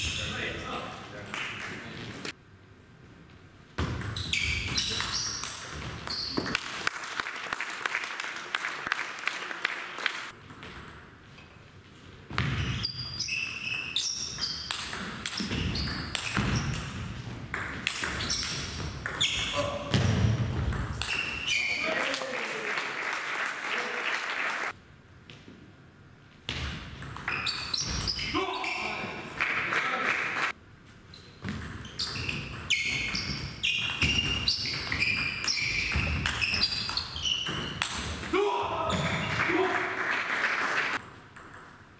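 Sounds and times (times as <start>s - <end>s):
shoes squeaking on floor: 4.0s - 6.6s, 12.4s - 17.1s, 18.0s - 19.8s, 21.0s - 21.9s, 27.3s - 29.2s, 31.0s - 37.9s.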